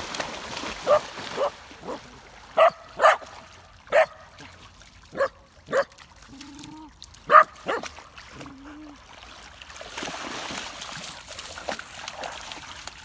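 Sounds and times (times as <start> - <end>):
dog barking: 0.9 - 2.0, 2.6 - 3.2, 3.9 - 4.2, 5.1 - 5.9, 7.3 - 7.9.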